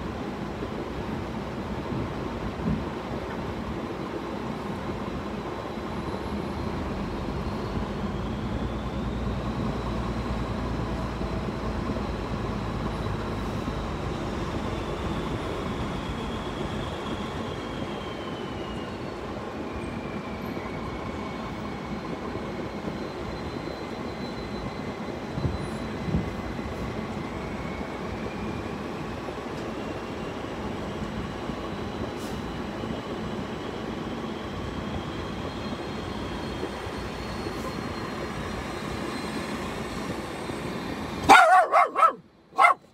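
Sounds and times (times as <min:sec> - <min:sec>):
car engine and road noise: 0:00.0 - 0:20.7, 0:34.4 - 0:42.9.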